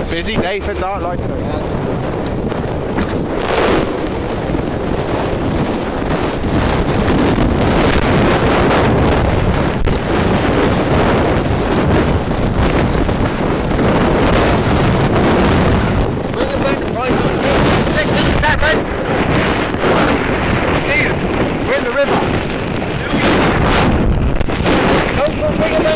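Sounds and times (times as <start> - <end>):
waves slapping a boat hull: 0.0 - 25.9
wind blasting across microphone: 0.0 - 25.9.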